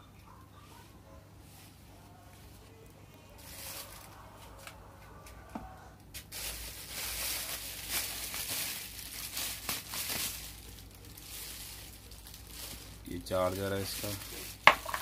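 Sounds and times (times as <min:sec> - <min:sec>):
packaging rustling and crinkling: 0:03.4 - 0:04.8, 0:06.0 - 0:15.0.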